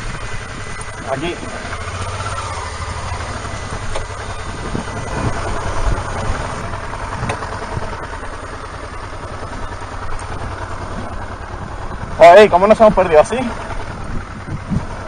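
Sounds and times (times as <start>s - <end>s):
motorcycle engine running at low revs: 0.0s - 15.0s.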